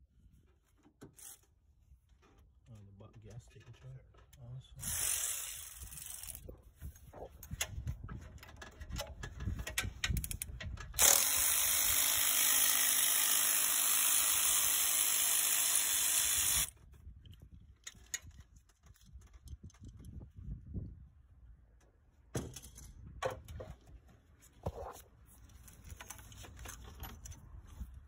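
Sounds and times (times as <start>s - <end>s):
cordless electric ratchet running: 4.8s - 6.4s, 11.0s - 16.7s
tool handling clicks and knocks: 7.2s - 11.2s, 21.8s - 27.5s.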